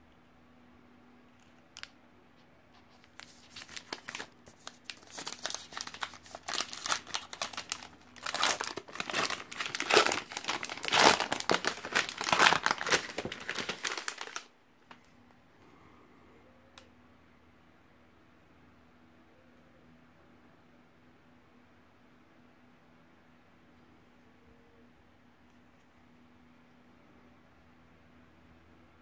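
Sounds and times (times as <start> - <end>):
wrapper crinkling and tearing: 3.0 - 14.5.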